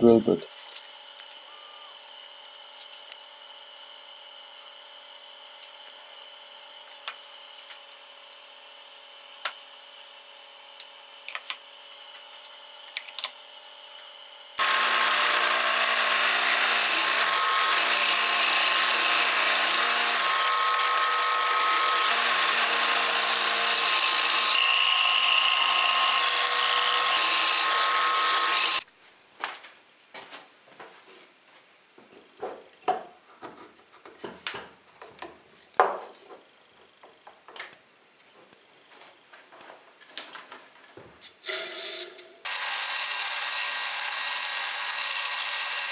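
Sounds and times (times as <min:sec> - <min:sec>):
drill press boring through wood: 0:14.6 - 0:28.8, 0:42.5 - 0:45.9.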